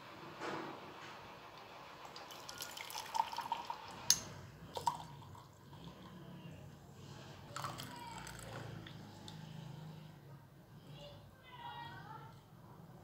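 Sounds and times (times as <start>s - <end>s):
tea pouring and dripping: 1.5s - 6.3s, 7.4s - 9.4s.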